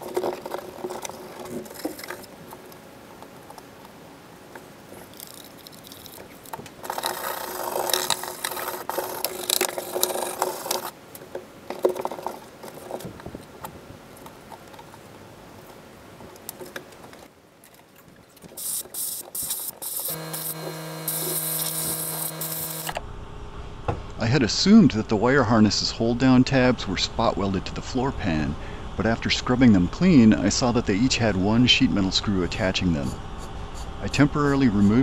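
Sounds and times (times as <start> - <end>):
rag scrubbing steel floor: 6.8 - 10.9
steady hum: 18.6 - 35.0.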